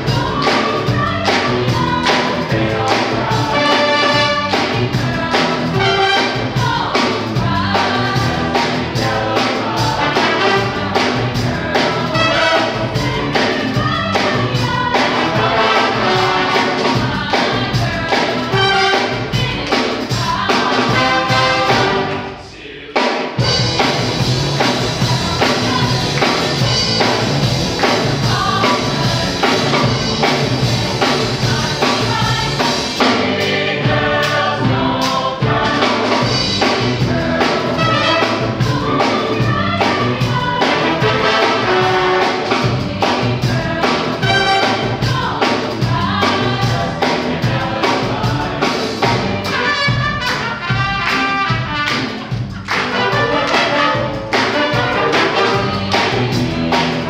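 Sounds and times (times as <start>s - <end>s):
bass guitar: 0.0s - 22.4s, 23.4s - 57.0s
brass and saxophone section: 0.0s - 22.8s, 23.4s - 57.0s
drums: 0.0s - 57.0s
group of singers singing: 0.0s - 57.0s.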